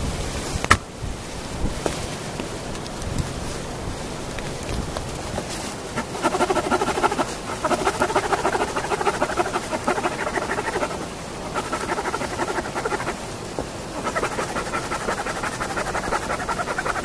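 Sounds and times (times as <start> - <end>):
saw cutting through log: 6.0 - 13.2, 14.0 - 17.0.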